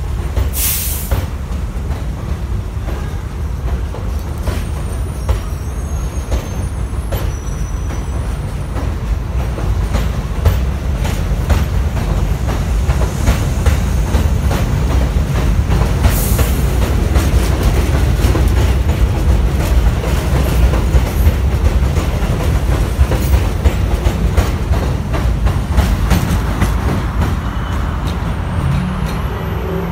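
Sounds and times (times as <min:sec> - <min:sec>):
subway train rumbling: 0:00.0 - 0:29.9
brief high hiss: 0:00.6 - 0:01.2
wheels clicking over rail joints: 0:06.2 - 0:27.4.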